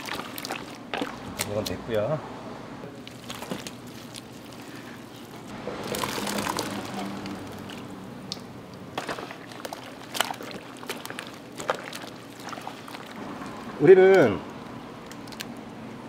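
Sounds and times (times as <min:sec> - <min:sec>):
liquid sloshing and pouring: 0:00.0 - 0:01.6, 0:03.0 - 0:13.7.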